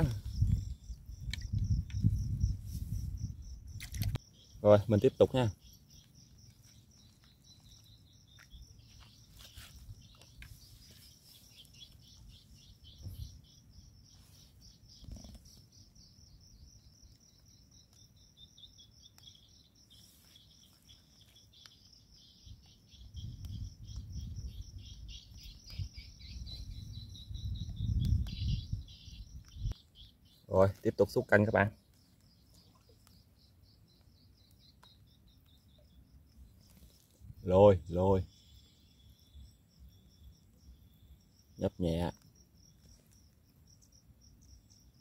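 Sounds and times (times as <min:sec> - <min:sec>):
wind buffeting microphone: 0:00.0 - 0:04.2, 0:12.3 - 0:13.8, 0:23.0 - 0:29.8
insects chirring: 0:00.0 - 0:45.0.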